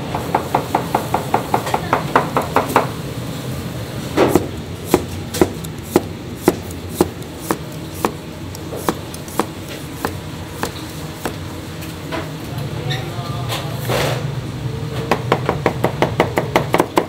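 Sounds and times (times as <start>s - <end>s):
steady low hum: 0.0s - 16.0s
knife chopping on cutting board: 4.2s - 11.4s.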